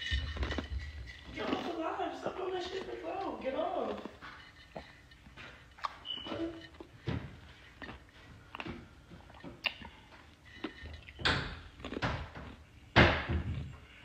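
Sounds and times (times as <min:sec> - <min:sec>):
knocks and bumps in a room: 0:11.2 - 0:14.0.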